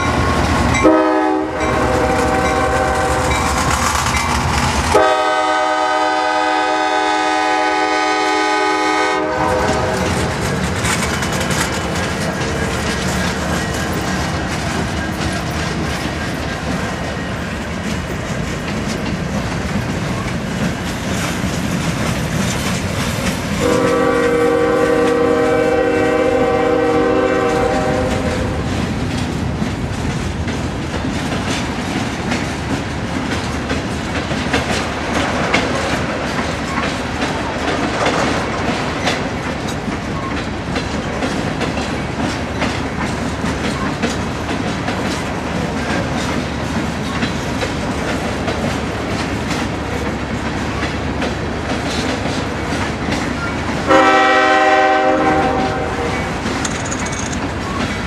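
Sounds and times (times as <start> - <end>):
train wheels clattering: 0.0 - 58.0
locomotive air horn: 0.8 - 3.4, 4.9 - 10.4, 23.6 - 28.6, 53.8 - 56.5.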